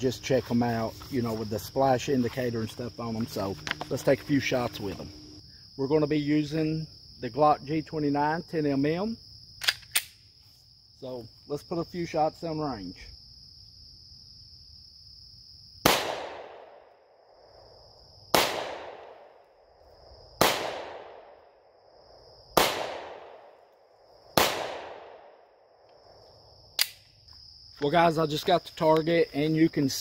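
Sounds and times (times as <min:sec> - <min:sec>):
insects buzzing: 0:00.0 - 0:30.0
pistol shots: 0:15.8 - 0:16.8, 0:18.3 - 0:19.4, 0:20.4 - 0:21.4, 0:22.6 - 0:23.5, 0:24.4 - 0:25.4.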